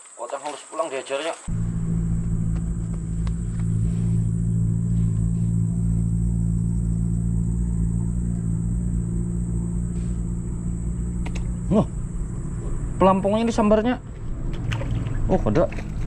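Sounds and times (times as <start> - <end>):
engine running steadily: 1.5 - 16.0.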